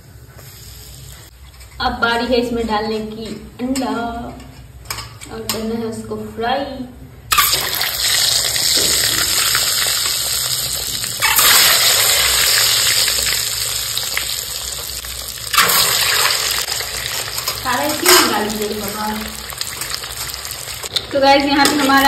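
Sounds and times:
eggs sizzling in hot oil: 0:00.3 - 0:01.4, 0:07.3 - 0:22.0.

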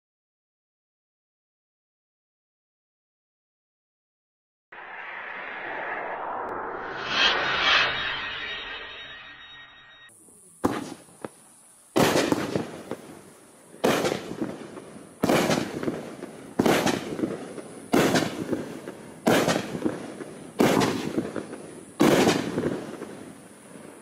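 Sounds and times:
firework bangs with crackle: 0:10.6 - 0:24.0
small firework pops: 0:10.6 - 0:24.0.

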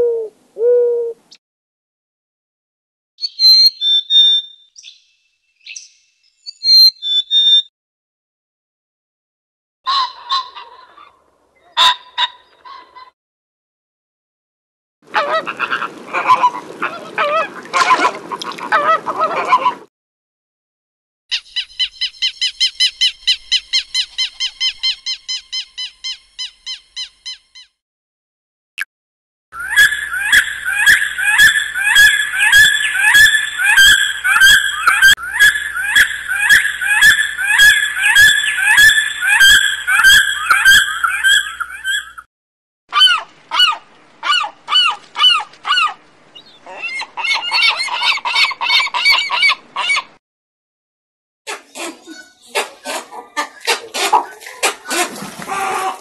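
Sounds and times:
bird piping calls: 0:03.2 - 0:07.7, 0:29.6 - 0:42.3, 0:43.0 - 0:50.1
flamingos honking: 0:15.1 - 0:19.8, 0:29.6 - 0:42.0.

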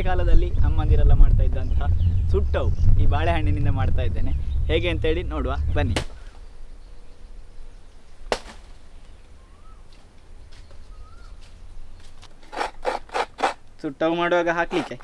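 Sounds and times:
steady low rumble: 0:00.0 - 0:09.5
sharp snap: 0:05.9 - 0:06.2
taps and rustles of leaf: 0:08.2 - 0:09.3
faint bird chirps: 0:09.0 - 0:12.2.

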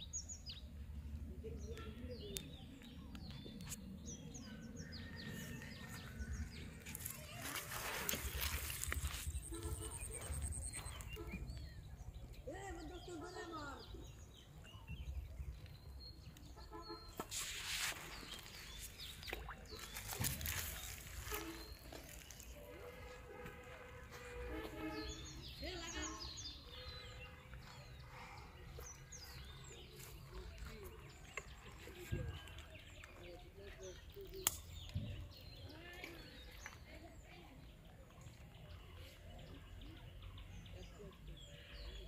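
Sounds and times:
small birds chirping: 0:00.0 - 0:23.2
rustling noise: 0:06.8 - 0:11.2, 0:17.2 - 0:24.8.

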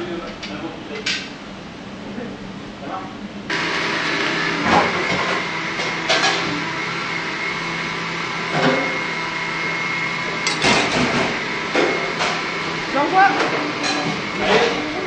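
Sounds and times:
ventilation whooshing hum: 0:00.0 - 0:06.7.

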